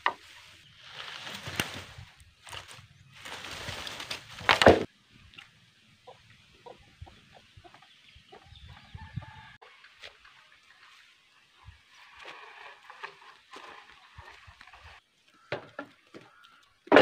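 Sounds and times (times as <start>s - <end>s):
chickens clucking: 6.0s - 9.4s.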